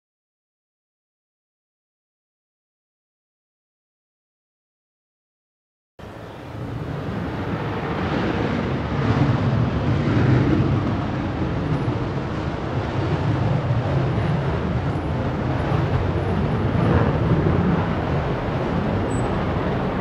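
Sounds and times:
jet engine roaring: 6.0s - 20.0s.

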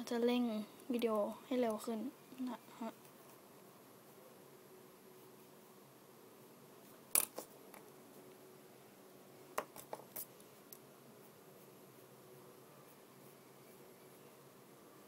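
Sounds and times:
pencil clicks and taps: 9.5s - 10.8s.

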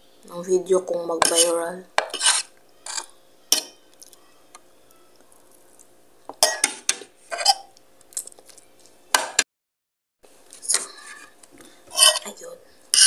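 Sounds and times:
cutlery scraping on plate: 1.2s - 3.8s, 6.4s - 7.7s, 11.9s - 12.3s.

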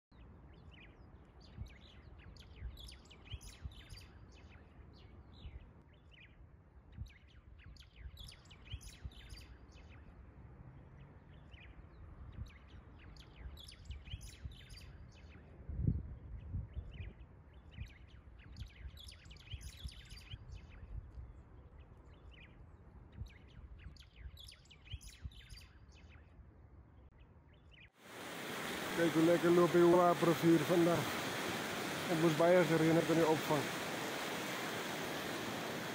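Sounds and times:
birds chirping: 27.7s - 35.9s.

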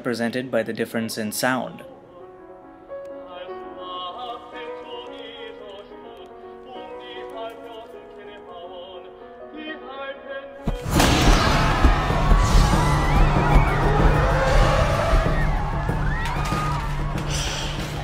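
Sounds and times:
slow classical-style music: 1.8s - 10.6s.

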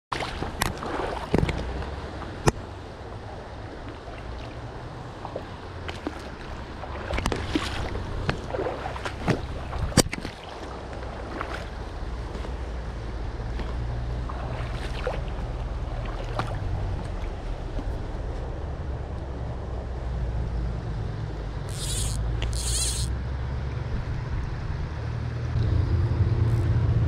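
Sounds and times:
water splashing: 0.1s - 2.8s, 3.6s - 11.9s, 13.6s - 18.0s
rocky stream running: 0.1s - 19.8s, 21.0s - 23.2s.

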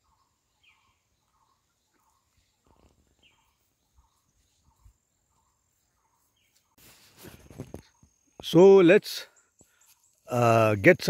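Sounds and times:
faint bird calls: 0.0s - 8.4s.

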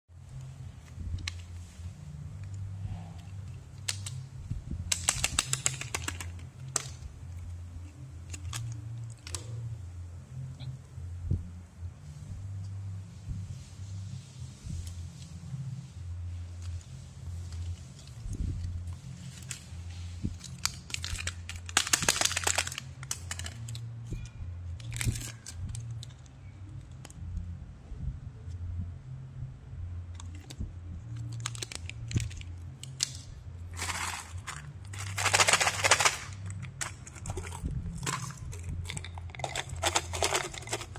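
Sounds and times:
steady low hum: 0.1s - 40.9s
plastic candy wrapper crackling: 4.9s - 7.0s, 20.4s - 23.8s, 31.2s - 40.9s
plastic packaging crinkling: 4.9s - 7.0s, 19.1s - 23.8s, 31.2s - 33.1s, 33.7s - 40.9s
paper lid being peeled: 33.7s - 40.9s.

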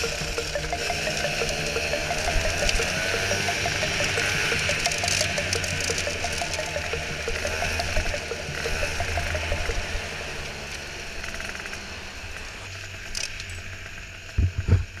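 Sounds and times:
go-kart engine rumble: 0.0s - 15.0s.

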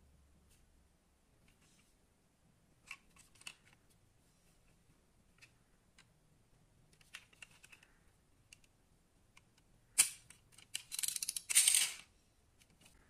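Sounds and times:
toy car clicking and rattling: 10.0s - 12.1s.

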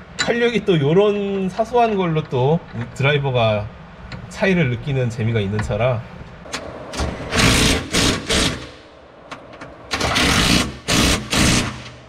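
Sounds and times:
impact wrench bursts: 6.9s - 8.8s, 9.9s - 12.0s.

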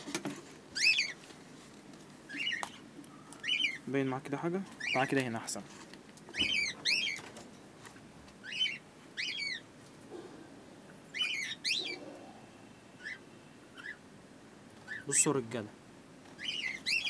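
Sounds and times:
high bird chirps: 0.8s - 1.2s, 2.3s - 3.9s, 6.3s - 7.3s, 8.4s - 9.7s, 11.1s - 12.1s, 12.9s - 14.0s, 16.4s - 17.0s.

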